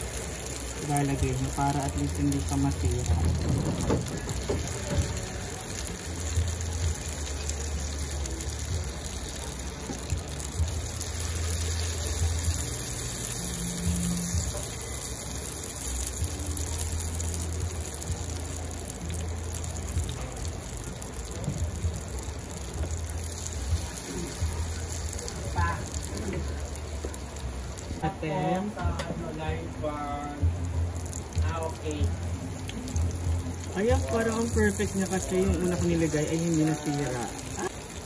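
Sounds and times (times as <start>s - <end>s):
oil sizzling in a frying pan: 0.0s - 38.0s.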